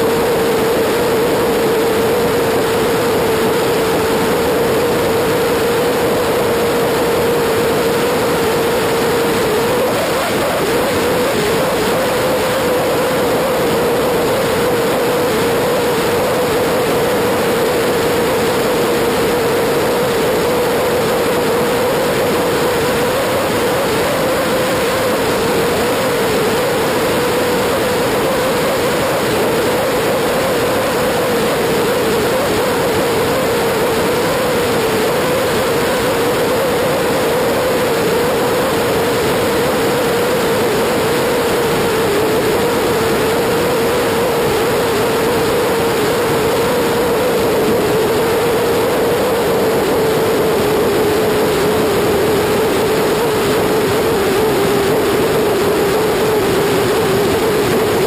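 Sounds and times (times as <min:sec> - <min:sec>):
motorcycle engine humming: 0:03.3 - 0:38.7.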